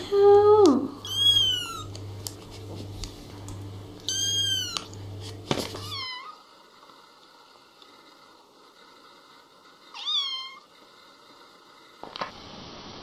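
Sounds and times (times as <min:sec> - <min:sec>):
low steady hum: 0:00.0 - 0:12.9
kitten meowing: 0:01.0 - 0:01.9, 0:04.1 - 0:04.9.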